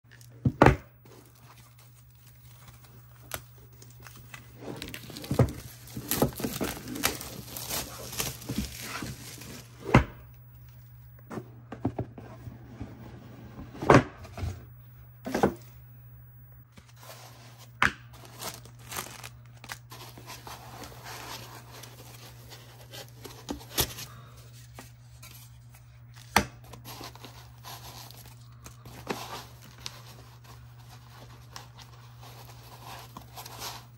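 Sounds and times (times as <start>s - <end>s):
plastic wrap crinkling: 1.0s - 11.0s, 17.0s - 24.3s
cardboard box tearing open: 4.8s - 9.7s.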